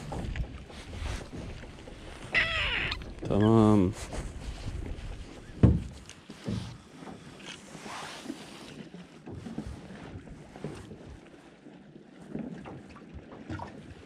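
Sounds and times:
knocks aboard boat: 0.0s - 7.3s
wind and water wash: 0.0s - 14.0s.

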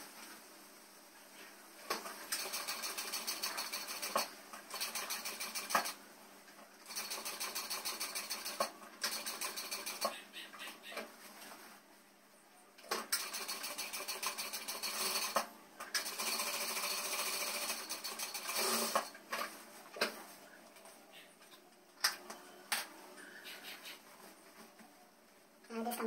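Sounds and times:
sewing machine stitching: 1.9s - 6.0s, 6.8s - 10.2s, 12.9s - 19.2s.

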